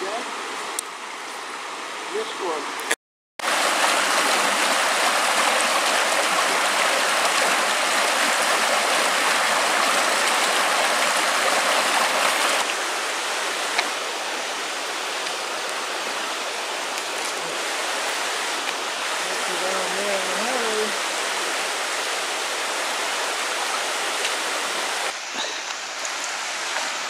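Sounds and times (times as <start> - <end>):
stream rushing over stones: 0.0 - 27.0.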